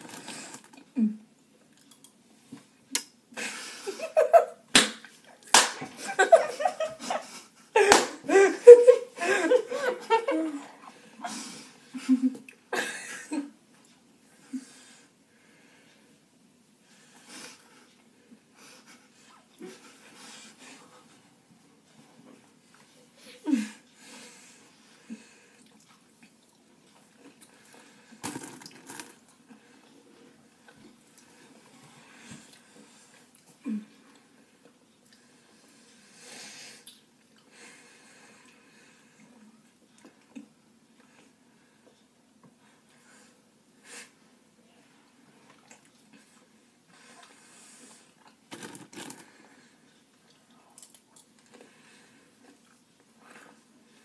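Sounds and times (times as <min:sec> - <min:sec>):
young people laughing: 0:03.8 - 0:04.6, 0:05.8 - 0:10.8
sharp smacks: 0:04.7 - 0:05.9.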